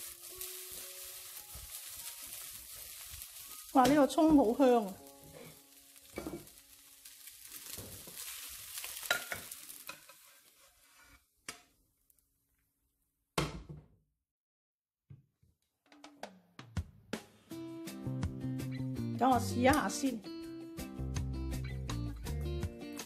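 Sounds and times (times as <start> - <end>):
spatula stirring rice in a wok: 0.0 - 11.7
faint sizzle: 0.0 - 12.3.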